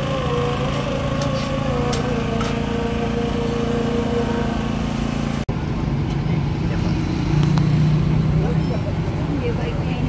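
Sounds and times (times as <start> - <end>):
small engine humming: 0.0 - 5.5.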